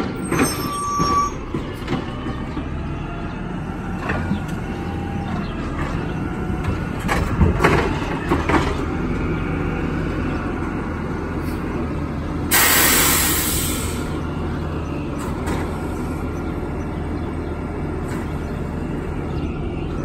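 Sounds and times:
truck clunks and rattles: 0:00.0 - 0:12.7, 0:13.8 - 0:20.0
truck engine running: 0:01.4 - 0:20.0
air brake hiss: 0:12.5 - 0:14.1.

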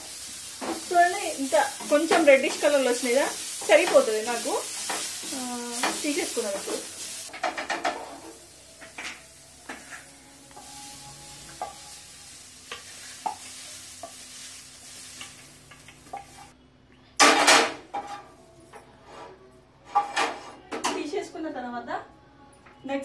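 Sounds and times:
wooden spatula scraping frying pan: 0:09.7 - 0:10.7.

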